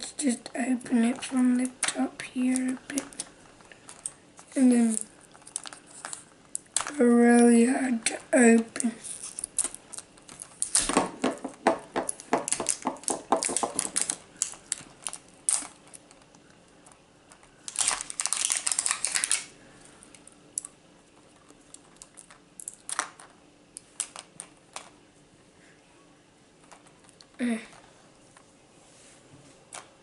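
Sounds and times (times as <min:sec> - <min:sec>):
crackling plastic scrape: 0:00.0 - 0:19.5.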